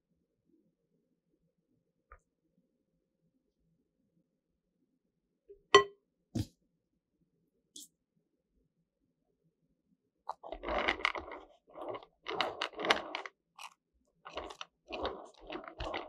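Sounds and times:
metal spatula scraping cream: 0:10.3 - 0:13.7, 0:14.3 - 0:16.0.

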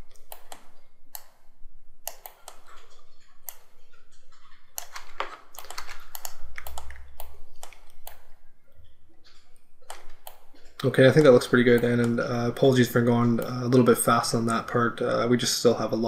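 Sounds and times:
keyboard typing: 0:00.0 - 0:14.9
mouse clicks: 0:00.1 - 0:01.4, 0:02.0 - 0:03.8, 0:04.8 - 0:10.6.

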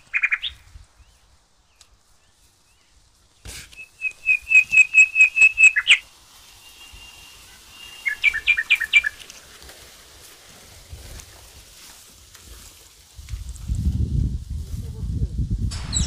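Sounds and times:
short snap: 0:03.5 - 0:03.8
bird whistled notes: 0:03.7 - 0:09.2, 0:15.7 - 0:16.0.

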